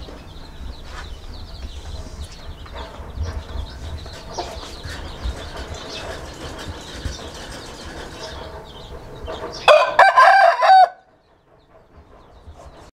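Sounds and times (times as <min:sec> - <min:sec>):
rooster crowing: 0:09.6 - 0:11.1.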